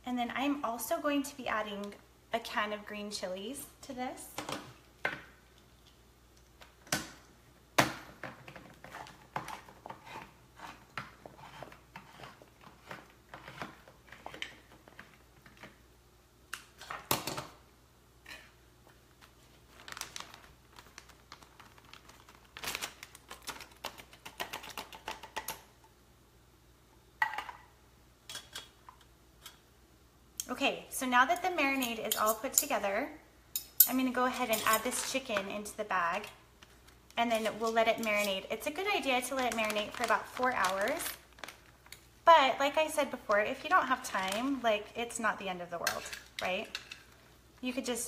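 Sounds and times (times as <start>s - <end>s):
plastic bag crinkling: 19.1s - 25.2s, 36.6s - 42.0s.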